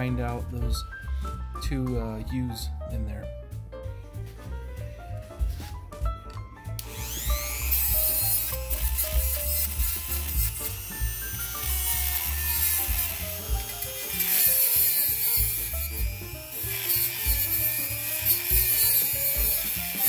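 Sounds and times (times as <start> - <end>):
rotary tool grinding metal: 6.8 - 20.0.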